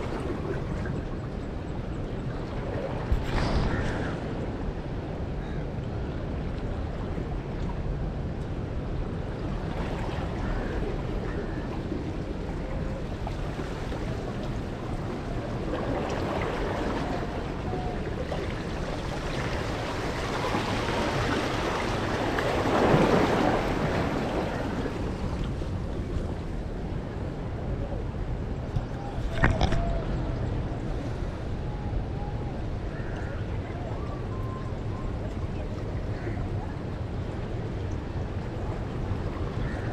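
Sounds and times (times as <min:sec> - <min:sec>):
wind noise on microphone: 0:00.0 - 0:39.9
sea water washing against rocks: 0:11.9 - 0:26.8.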